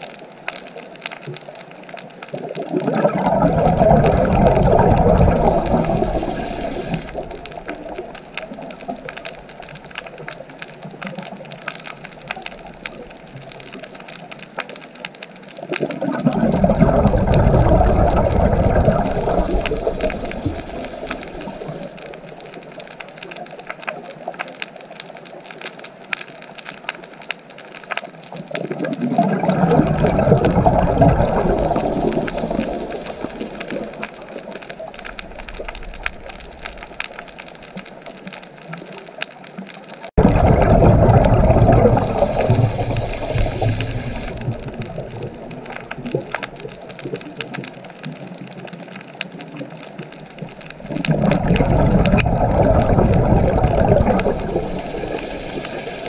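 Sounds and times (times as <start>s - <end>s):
fine underwater crackling: 0.0s - 56.0s
low rushing water: 2.3s - 14.6s, 15.5s - 23.2s, 28.4s - 38.6s, 40.0s - 56.0s.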